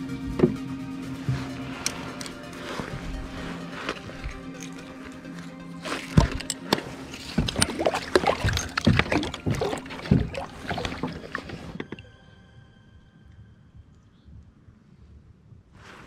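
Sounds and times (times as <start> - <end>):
water splashing: 1.3 - 12.0.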